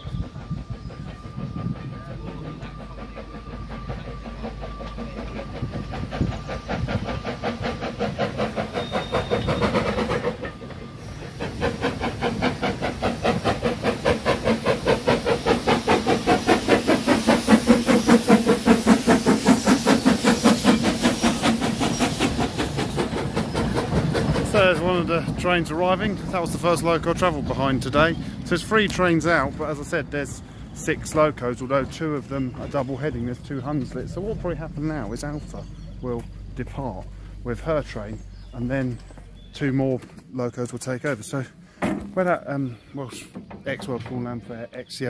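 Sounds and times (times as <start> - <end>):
steam hissing: 0.0 - 38.4
steam locomotive chuffing: 0.0 - 45.0.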